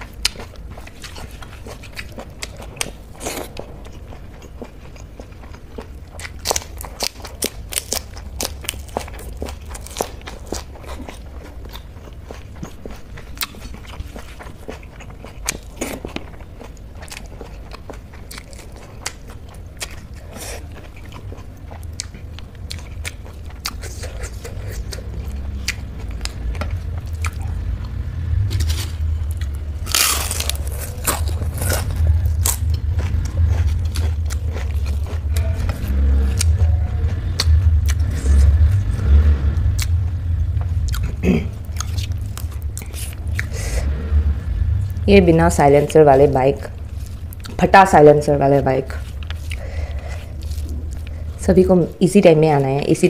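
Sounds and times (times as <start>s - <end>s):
close chewing and crunching: 0.0s - 43.8s, 44.8s - 53.0s
motorbikes rumbling: 24.9s - 47.0s.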